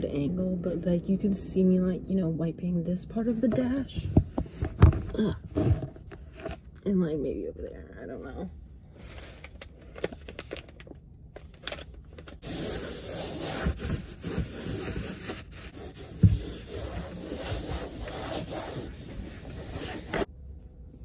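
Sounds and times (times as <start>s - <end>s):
wipe scrubbing a dashboard: 12.4s - 20.3s.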